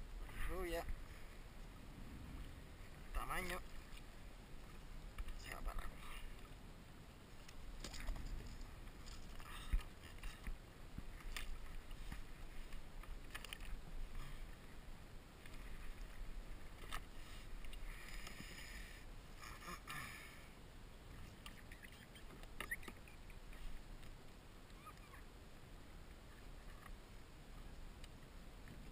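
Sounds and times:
wind rumble on microphone: 0.0s - 18.0s
water lapping against hull: 0.1s - 6.6s, 7.3s - 24.0s.

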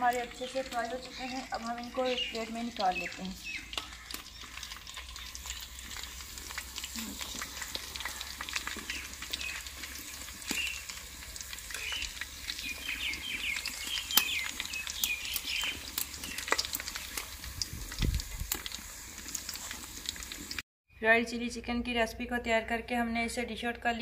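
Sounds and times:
hot oil sizzling: 0.0s - 20.6s
oil popping: 0.0s - 20.6s.

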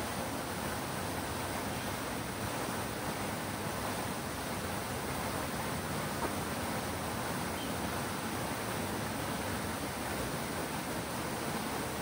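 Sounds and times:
fountain water splashing: 0.0s - 12.0s.

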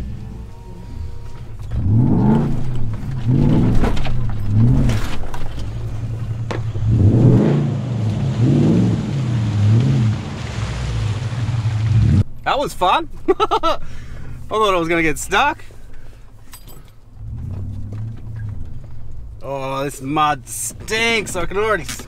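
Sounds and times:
car engine revving: 0.0s - 12.2s, 17.2s - 19.4s.

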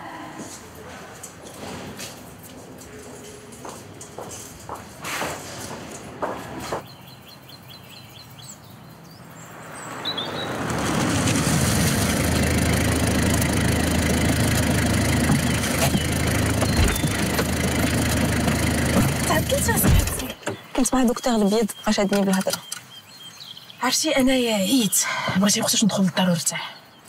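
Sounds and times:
car engine idling: 10.6s - 20.4s.

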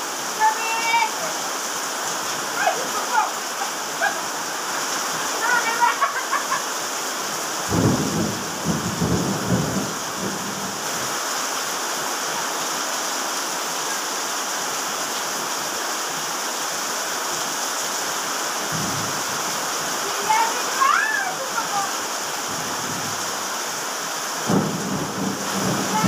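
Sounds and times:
heavy rain pouring: 0.0s - 26.0s.

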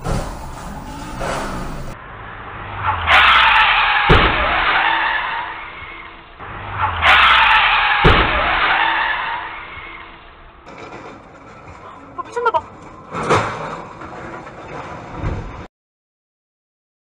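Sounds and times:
heavy crash impact: 0.0s - 2.0s, 3.0s - 5.6s, 6.4s - 9.8s
car tyres screeching: 0.0s - 15.6s.

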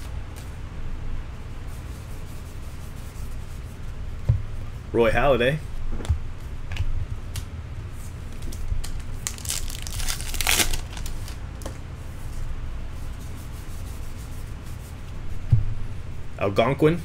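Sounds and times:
low steady hum: 0.0s - 17.0s
cards being shuffled: 8.3s - 11.8s
wrapper crinkling: 8.8s - 11.4s.

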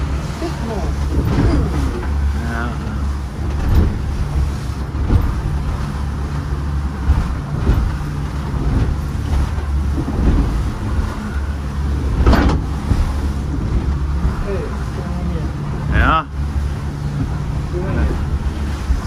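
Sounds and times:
wind on microphone: 0.0s - 15.0s
boat engine humming: 0.0s - 19.0s
wave thumps and splashes: 0.0s - 19.0s.

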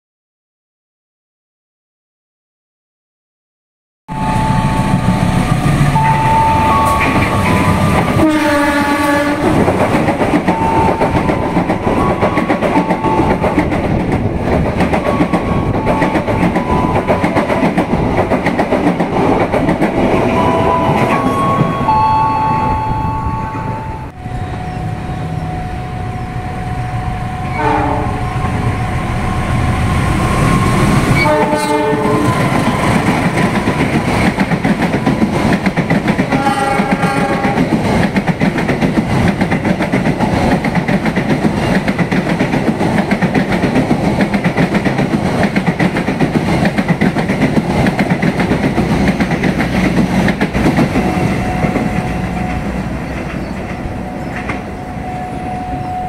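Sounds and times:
train horn blasts: 4.1s - 5.3s, 5.9s - 9.6s, 26.6s - 29.9s, 30.5s - 32.9s, 36.3s - 37.7s
train rumbling on rails: 4.1s - 56.0s.

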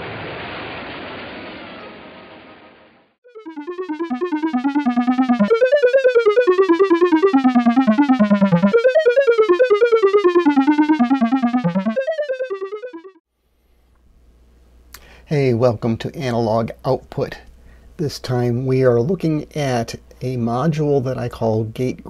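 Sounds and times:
synthesizer melody: 3.3s - 13.2s.

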